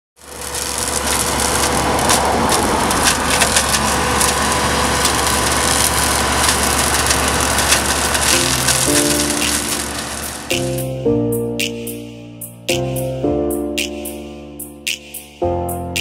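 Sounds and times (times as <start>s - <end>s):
wood splintering cracks: 0.2s - 10.8s
hedge-cutter flail shredding branches: 0.2s - 11.0s
tractor engine running: 0.2s - 13.1s.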